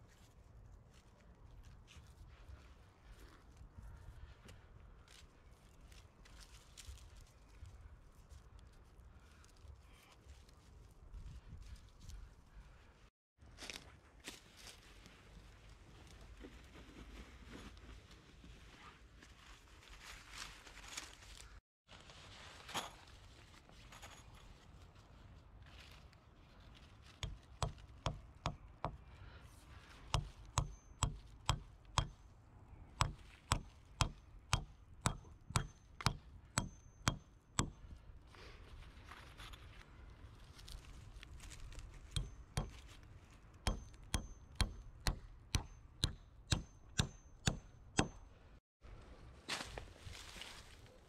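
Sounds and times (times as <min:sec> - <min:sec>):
tool chopping wood: 0:27.2 - 0:29.0, 0:30.1 - 0:32.2, 0:33.0 - 0:37.9, 0:42.1 - 0:42.9, 0:43.7 - 0:48.2.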